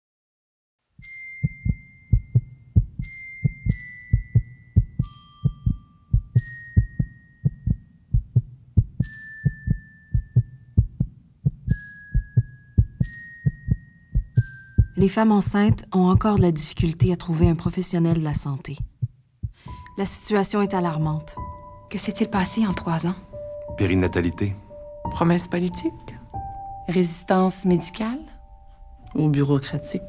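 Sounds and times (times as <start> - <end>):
rapid heartbeat thumps: 1.4 - 19.7.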